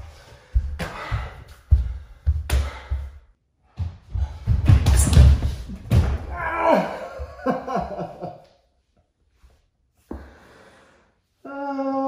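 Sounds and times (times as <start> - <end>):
body thudding on wooden floor: 4.3 - 6.4
person groaning: 6.3 - 7.3, 11.4 - 12.0.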